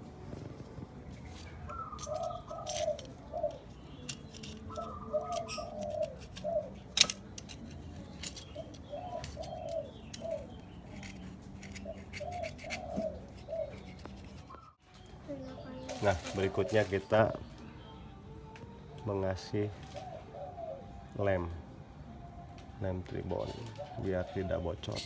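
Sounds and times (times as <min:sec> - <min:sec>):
dove cooing: 0:00.3 - 0:14.8, 0:15.5 - 0:17.4, 0:19.7 - 0:21.5, 0:23.4 - 0:25.0.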